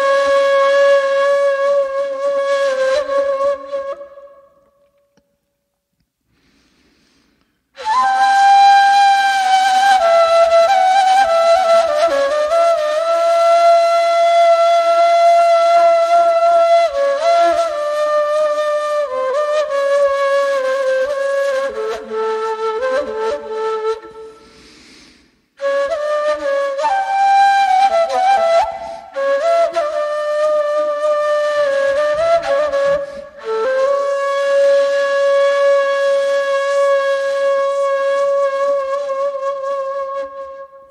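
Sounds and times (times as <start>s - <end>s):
breathy reed flute: 0.0s - 5.3s, 6.3s - 40.9s
end-blown reed flute playing: 7.8s - 24.3s.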